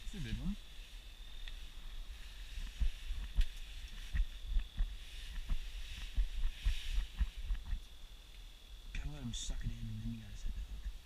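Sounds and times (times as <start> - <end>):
faint high-pitched whine: 0.0 - 11.0.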